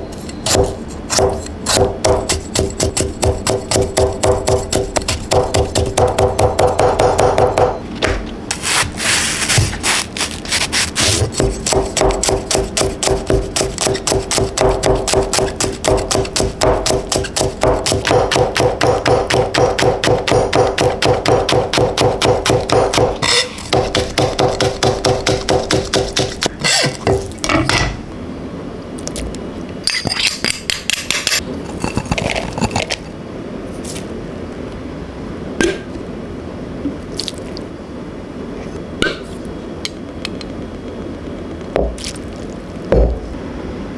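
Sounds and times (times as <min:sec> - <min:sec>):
cleaver chopping on cutting board: 0:00.5 - 0:07.8, 0:11.0 - 0:27.3.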